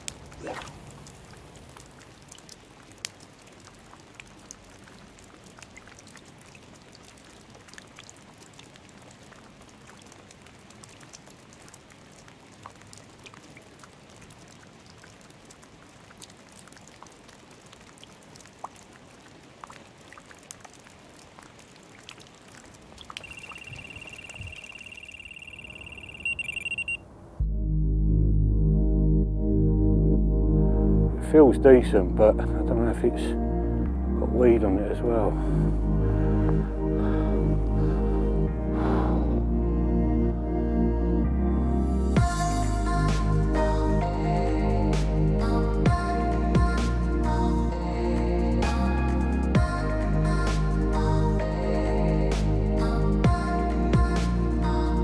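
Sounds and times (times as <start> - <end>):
light rain pattering: 0.0 - 27.4, 31.2 - 39.4, 42.0 - 55.0
bite alarm electronic tone: 23.2 - 27.0.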